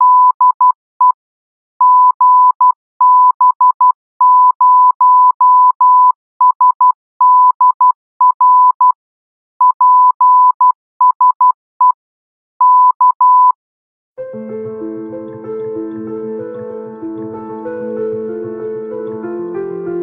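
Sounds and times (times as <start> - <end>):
morse code tone: 12.6 - 13.6.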